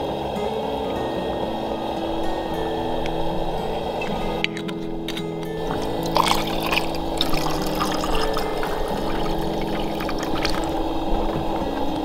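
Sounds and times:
water pouring into metal mug: 5.6 - 11.0.

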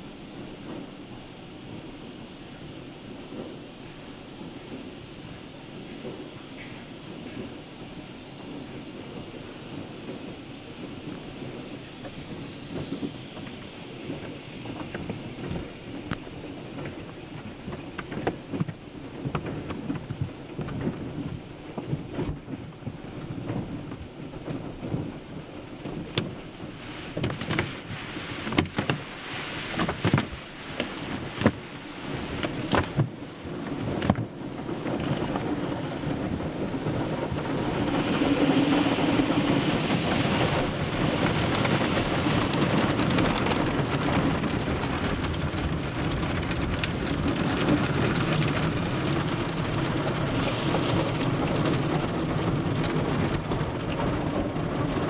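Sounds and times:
water spray rushing: 26.6 - 33.6, 34.9 - 44.0.

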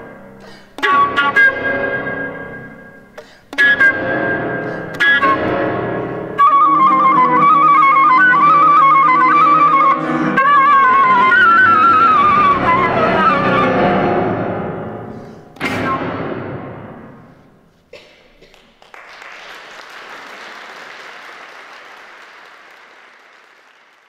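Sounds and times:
flute melody: 0.0 - 17.5
piano: 0.0 - 18.0
audience applause: 18.4 - 24.0.

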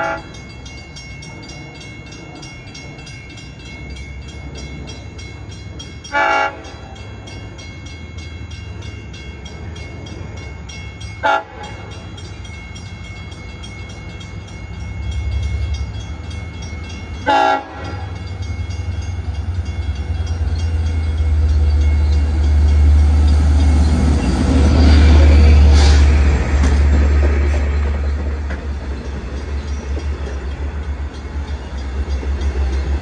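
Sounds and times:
train horn blasts: 0.0 - 0.4, 6.1 - 6.8, 11.2 - 11.9, 17.2 - 18.2.

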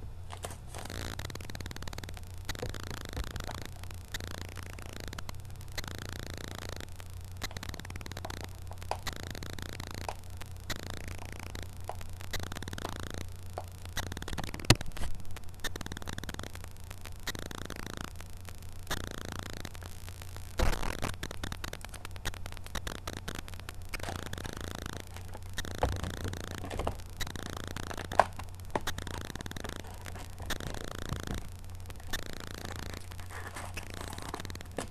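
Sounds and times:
steady low hum: 0.0 - 34.9
foil wrappers crinkling: 0.3 - 1.6, 23.9 - 34.9
sharp clicks: 0.8 - 33.2.

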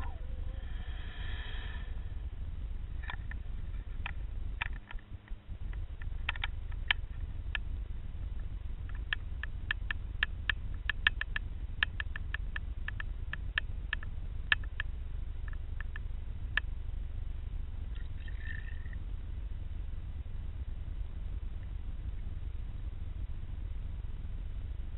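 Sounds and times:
low underwater rumble: 0.0 - 4.6
sharp underwater clicks: 5.7 - 7.7, 8.8 - 14.9.

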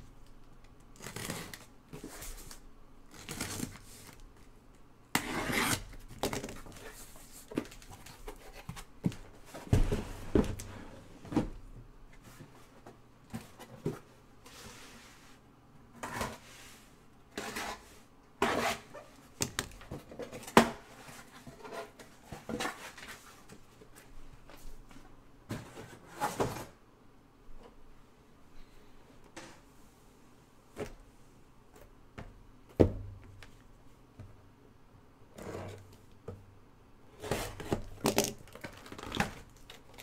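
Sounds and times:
cardboard boxes scraping and rustling: 5.2 - 5.9, 17.4 - 19.0, 25.5 - 26.8, 37.2 - 37.9.

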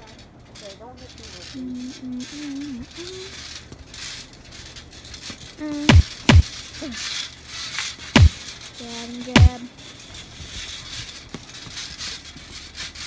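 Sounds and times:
deep thumps: 5.9 - 6.5, 8.2 - 8.4, 9.4 - 9.6.

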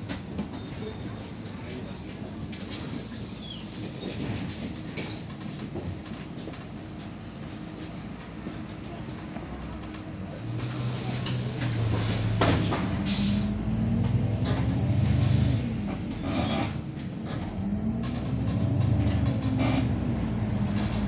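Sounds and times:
bus body knocks and rattles: 0.0 - 13.2, 15.8 - 21.0
bus engine: 0.0 - 21.0.

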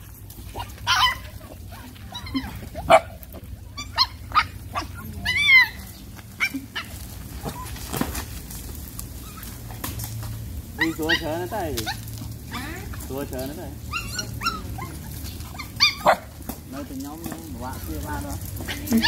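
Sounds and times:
puppies whining and yelping: 0.0 - 8.1, 9.0 - 10.0, 10.6 - 16.6.

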